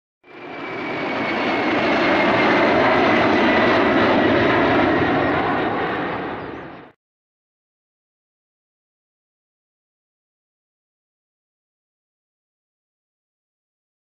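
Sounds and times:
jet engine passing overhead: 0.2s - 7.0s.

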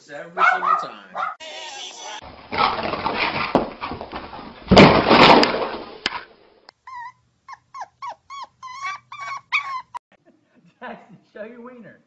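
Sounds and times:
dogs scuffling in play: 2.3s - 5.4s
puppy whimpering: 6.8s - 10.0s.

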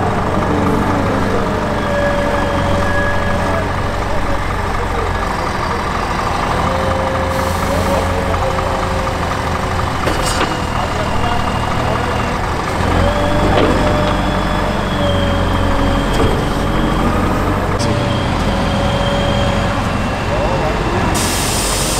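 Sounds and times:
hydraulic whine: 0.0s - 21.9s
wheel loader diesel engine: 0.0s - 21.9s.

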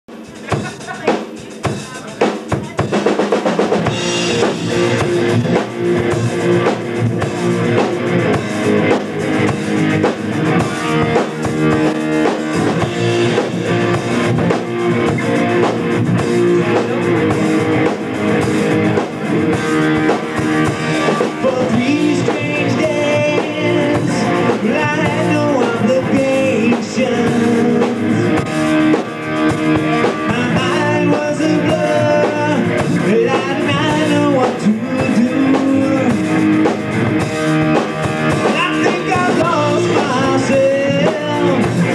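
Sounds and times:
live rock band playing: 0.1s - 41.9s
man singing: 16.2s - 17.9s, 20.8s - 28.7s, 29.8s - 36.7s, 38.3s - 41.9s.

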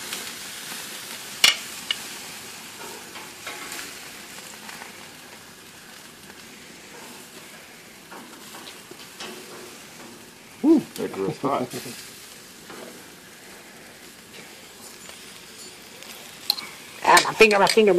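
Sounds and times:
meat sizzling on grill: 0.0s - 17.9s
metal tongs clicking: 16.4s - 17.9s.

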